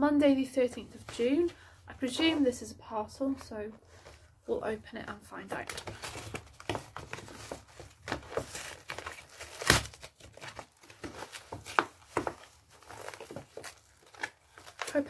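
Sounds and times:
envelope crinkling and rustling: 0:05.5 - 0:15.0
loud paper rip: 0:09.0 - 0:10.1.

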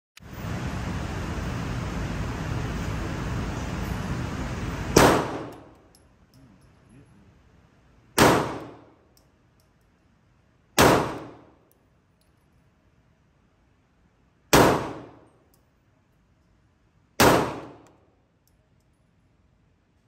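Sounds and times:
pistol shots with echo: 0:05.0 - 0:05.7, 0:08.2 - 0:09.0, 0:10.8 - 0:11.5, 0:14.5 - 0:15.3, 0:17.2 - 0:17.9.

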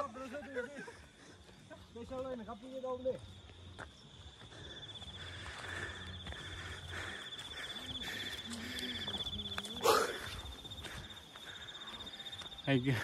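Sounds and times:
faint voices: 0:05.2 - 0:13.0.

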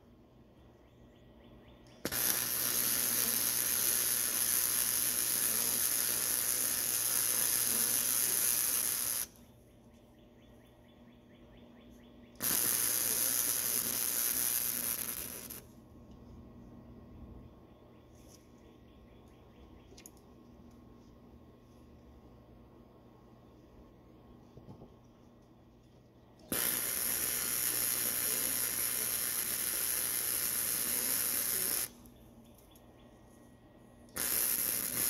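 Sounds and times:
welding arc crackling and sizzling: 0:02.0 - 0:09.4, 0:12.4 - 0:15.7, 0:26.5 - 0:32.0, 0:34.2 - 0:35.0.

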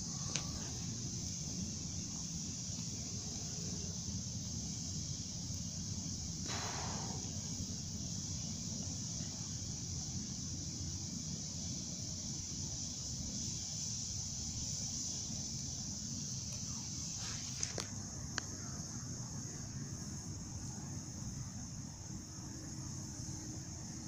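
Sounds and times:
high insect drone: 0:00.0 - 0:24.0.

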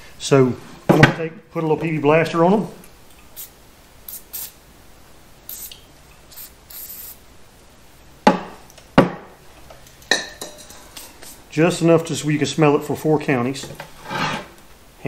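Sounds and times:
aerosol can spraying: 0:03.4 - 0:04.6, 0:05.5 - 0:07.2
sharp knocks: 0:08.3 - 0:09.3.

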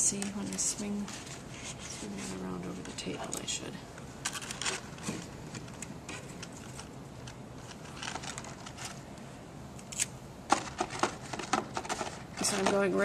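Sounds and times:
low background hum: 0:00.0 - 0:13.0
paper rustling: 0:04.2 - 0:09.1, 0:10.5 - 0:13.0.

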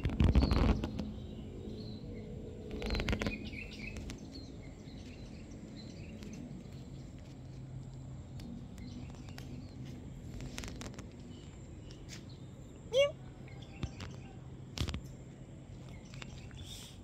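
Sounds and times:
low steady hum: 0:00.0 - 0:17.0
faint bird chirps: 0:15.8 - 0:17.0.

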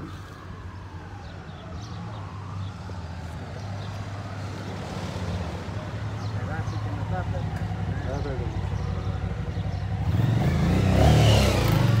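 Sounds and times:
traffic engine hum: 0:00.0 - 0:12.0
motorcycle riding closer: 0:06.7 - 0:12.0.

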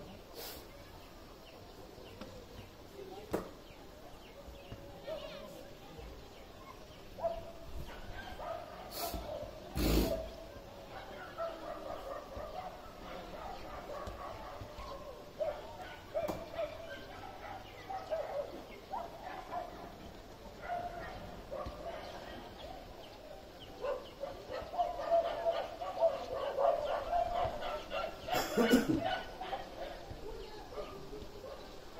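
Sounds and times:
faint voices: 0:00.0 - 0:31.9
dogs barking: 0:07.1 - 0:31.9.

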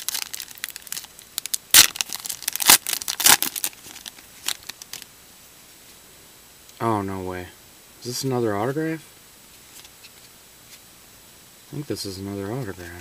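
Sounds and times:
foil wrapper tearing and crinkling: 0:00.0 - 0:05.1.

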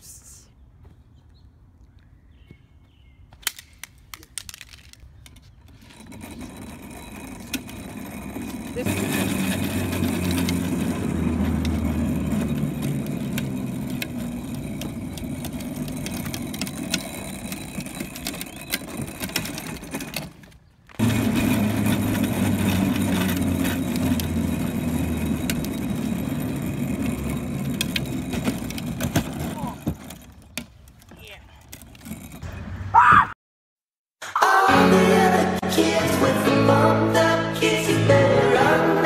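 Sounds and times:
plastic wheels rolling over asphalt: 0:04.3 - 0:32.6.

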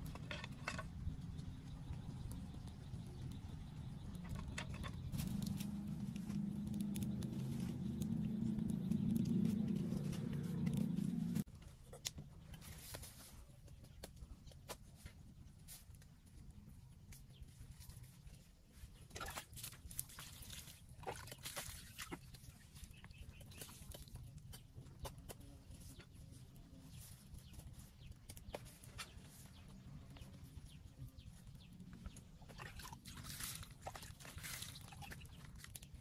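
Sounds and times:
fire crackling: 0:00.0 - 0:11.5
low hum: 0:00.0 - 0:11.5
water splashing: 0:32.5 - 0:35.8.

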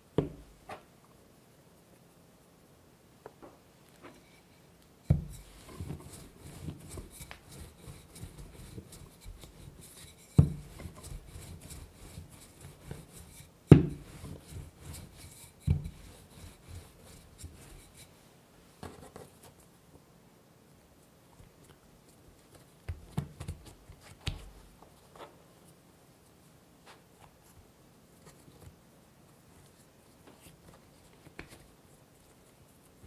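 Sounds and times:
dough rustling: 0:03.9 - 0:18.2, 0:22.3 - 0:33.0
rolling pin rolling dough: 0:05.0 - 0:18.2
rolling pin knocking on board: 0:10.4 - 0:10.8, 0:13.7 - 0:14.0.

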